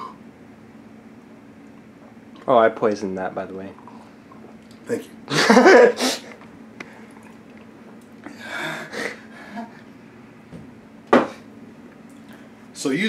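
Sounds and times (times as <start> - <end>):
person sipping from a mug: 6.8 - 7.7.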